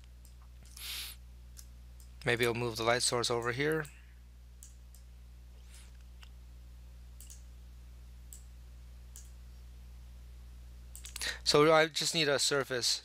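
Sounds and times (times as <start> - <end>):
low electrical hum: 0.0 - 13.0
computer mouse clicks: 7.2 - 7.4, 9.1 - 9.4, 10.9 - 11.3.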